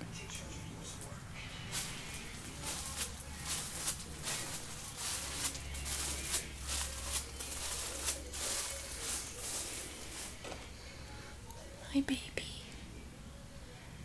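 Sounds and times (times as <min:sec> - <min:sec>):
footsteps on plastic sheeting: 0:01.7 - 0:10.8.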